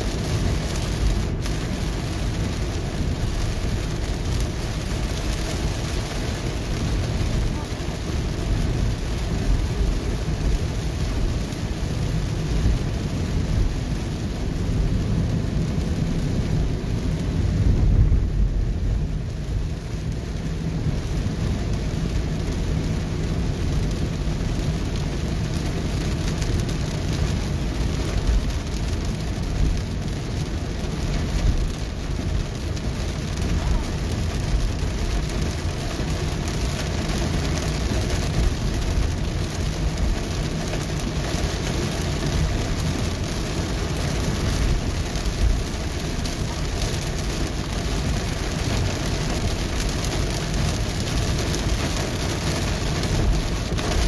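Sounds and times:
heavy rain on car roof: 0.0 - 54.0
tyre noise on wet road: 0.0 - 54.0
low rumble: 6.6 - 24.0.

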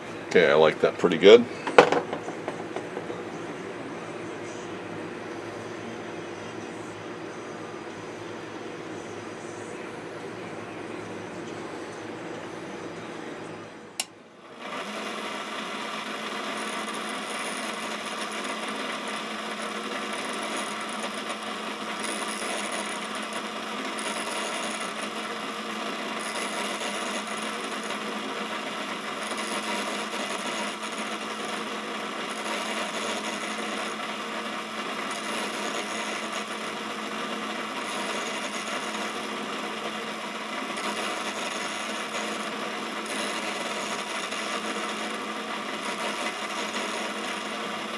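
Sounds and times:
grinder running: 0.0 - 3.4, 14.4 - 47.9
grinding wheel hiss: 14.6 - 47.9.

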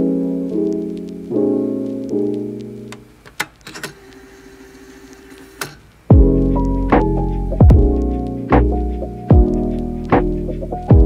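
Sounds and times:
piano chords: 0.0 - 3.2, 6.1 - 11.0
sharp clicks: 2.1 - 4.3, 5.1 - 5.9.

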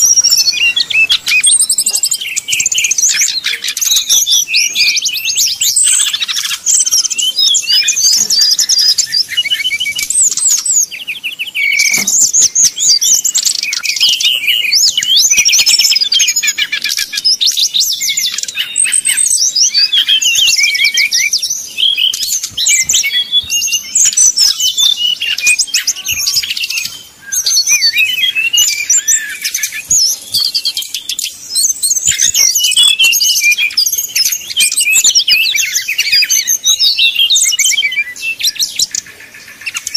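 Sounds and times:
bird singing whistles and trills: 0.0 - 39.9.

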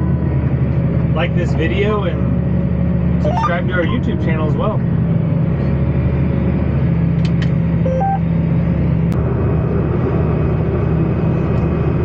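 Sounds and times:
two-note electronic beep: 3.2 - 4.1, 7.9 - 8.3
tractor engine droning: 7.6 - 12.0.

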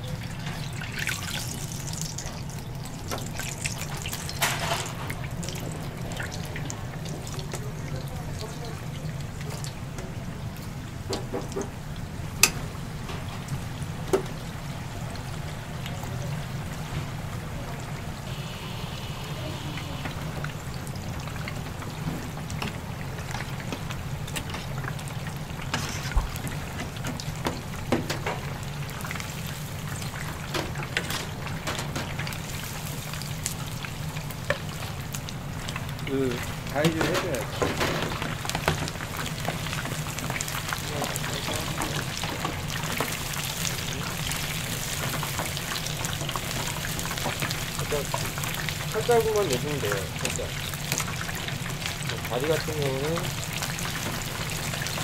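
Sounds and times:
steady low hum: 11.8 - 27.8.

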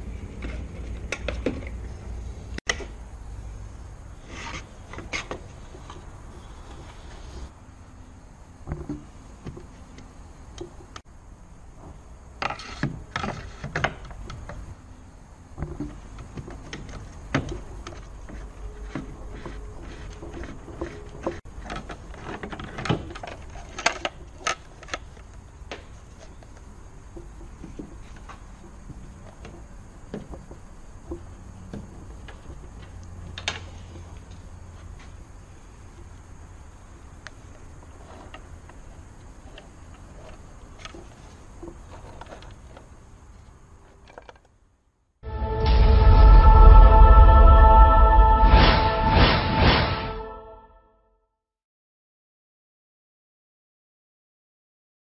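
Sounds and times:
steady low hum: 45.2 - 50.5.

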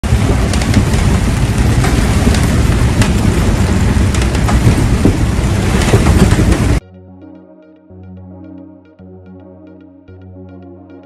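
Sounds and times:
deep engine rumble: 0.0 - 6.8
raindrops ticking: 0.0 - 6.8
wind and rain on vinyl: 0.0 - 6.8.

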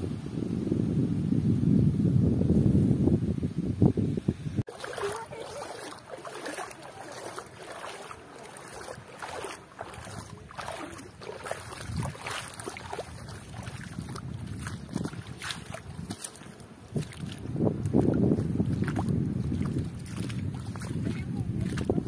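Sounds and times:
light wind: 0.0 - 22.0
shallow water splashes: 4.7 - 22.0.

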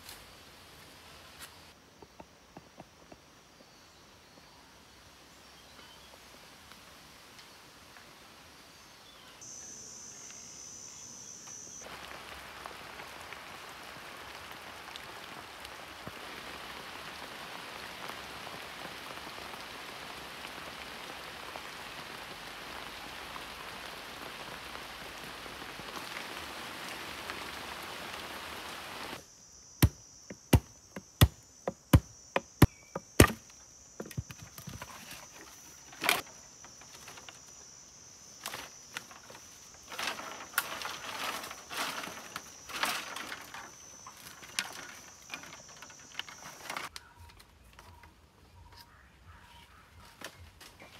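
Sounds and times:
steady hiss: 0.0 - 2.0, 3.2 - 46.9
high insect buzz: 9.0 - 15.0, 26.0 - 46.9
stone axe striking bamboo: 29.8 - 34.6.

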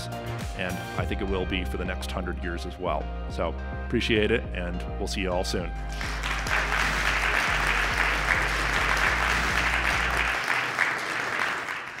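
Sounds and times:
music with low beat: 5.6 - 10.2
audience applauding: 5.9 - 12.0.

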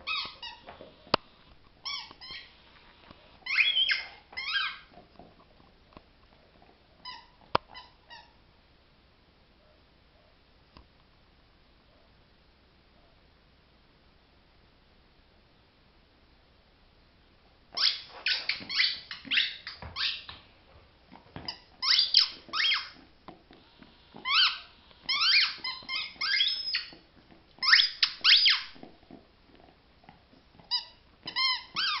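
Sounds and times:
squeaky dog toy squeaking: 0.0 - 0.8, 1.8 - 2.6, 3.4 - 5.0, 7.0 - 8.4, 17.7 - 20.3, 21.4 - 23.1, 24.2 - 27.0, 27.6 - 28.8, 30.6 - 32.0.

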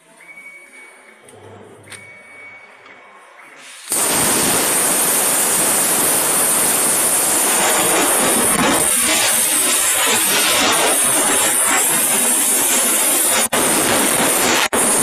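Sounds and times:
plasma cutter hissing: 3.6 - 15.0.

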